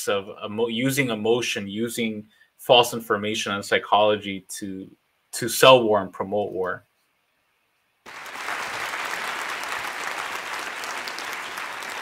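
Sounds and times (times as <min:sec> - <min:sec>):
audience applauding: 0:08.1 - 0:12.0.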